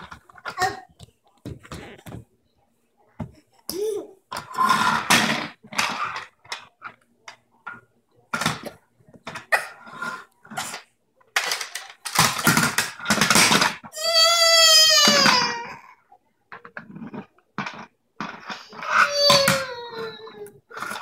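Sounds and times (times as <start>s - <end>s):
plastic toy clattering on floor: 10.5s - 14.0s
toddlers crying and babbling: 14.0s - 16.0s, 18.8s - 20.6s.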